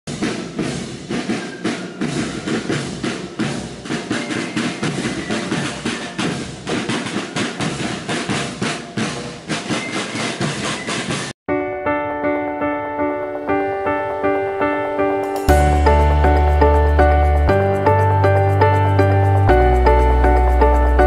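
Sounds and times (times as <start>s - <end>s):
side drums beating march rhythm: 0.1s - 11.3s.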